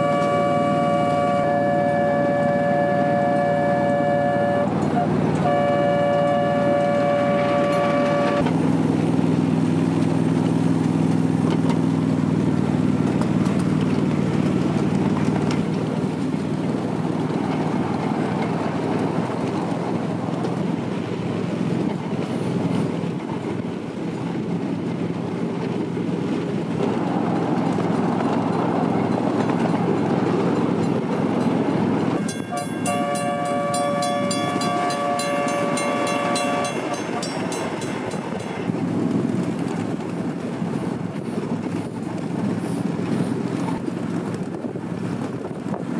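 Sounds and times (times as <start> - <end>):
multi-tone train horn: 0.0 - 8.5, 32.1 - 39.1
miniature train rumbling on track: 0.0 - 45.9.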